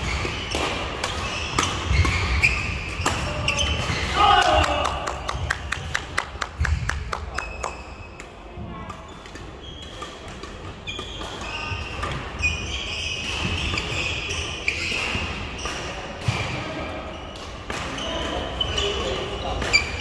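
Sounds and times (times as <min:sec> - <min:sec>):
shoes squeaking on floor: 0:00.0 - 0:04.1, 0:09.0 - 0:16.0, 0:17.1 - 0:20.0
racket hitting shuttlecock: 0:00.0 - 0:04.6.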